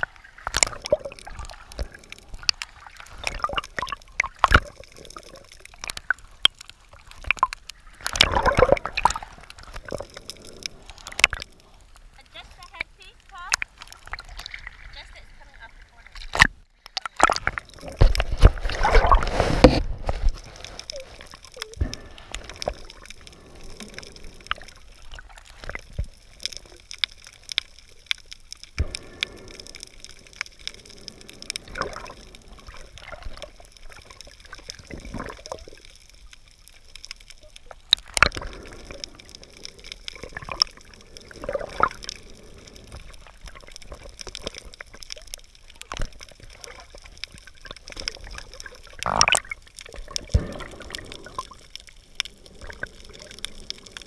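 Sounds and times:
water sloshing and gurgling: 0:00.0 - 0:54.0
small clicks and knocks: 0:19.6 - 0:54.0.

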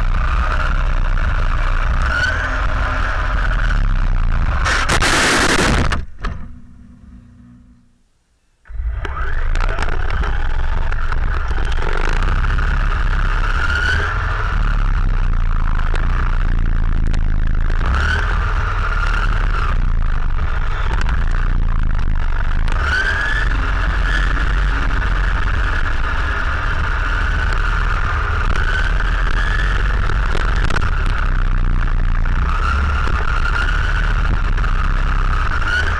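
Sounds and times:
low rumble: 0:00.0 - 0:08.0, 0:08.7 - 0:35.9
rc car motor whine: 0:08.7 - 0:35.9.

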